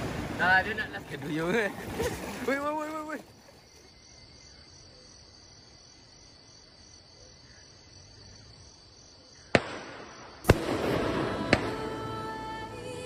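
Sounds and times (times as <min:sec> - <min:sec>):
night insects trilling: 0:00.0 - 0:12.8
firework bangs: 0:09.5 - 0:12.5
firework crackling: 0:09.6 - 0:13.0.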